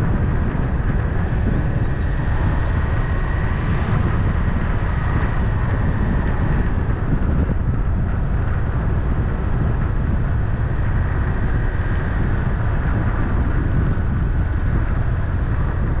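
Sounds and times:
car engine drone: 0.0s - 16.0s.

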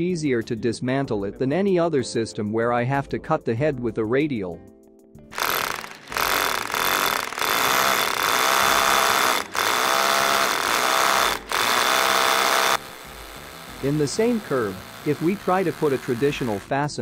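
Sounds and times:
hammer drill boring into concrete: 5.3s - 16.7s.

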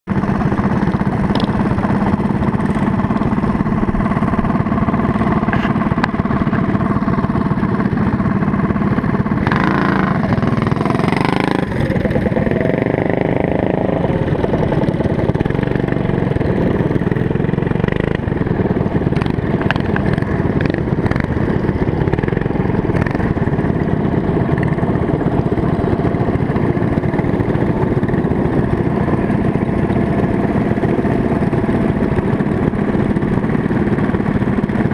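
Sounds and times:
small engines running: 0.1s - 34.9s.

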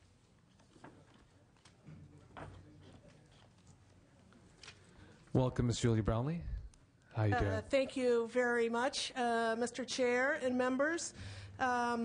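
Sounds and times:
faint clicks and rustles: 0.1s - 5.4s.

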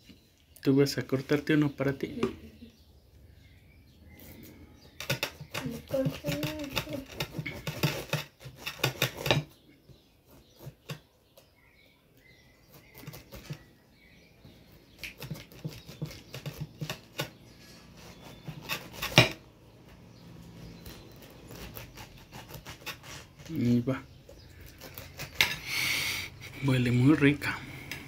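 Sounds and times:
knife sawing through pineapple: 5.5s - 9.4s, 15.0s - 19.3s, 20.5s - 23.9s, 24.6s - 26.8s.

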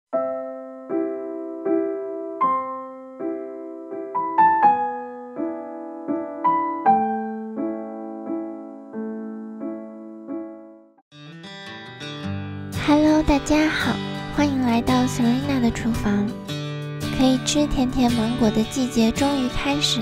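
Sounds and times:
gentle electric piano chords: 0.2s - 10.9s.

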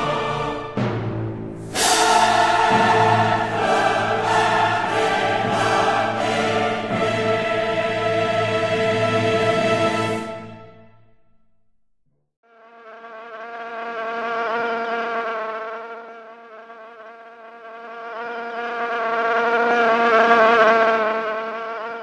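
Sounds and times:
fly buzzing: 12.5s - 22.0s.

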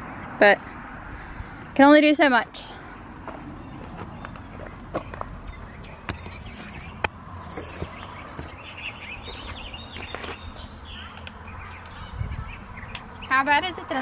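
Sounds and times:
small birds chirping: 2.5s - 14.0s.

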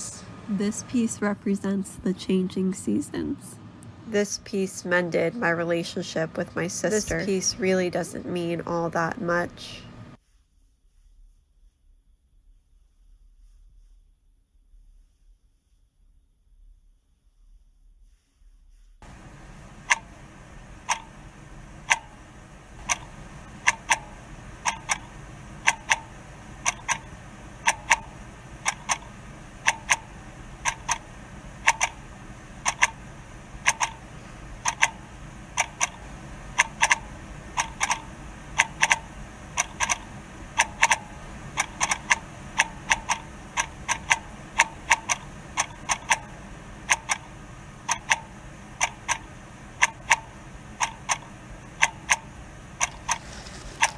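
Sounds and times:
clock ticking: 19.8s - 21.2s, 21.8s - 32.0s, 32.6s - 53.9s.

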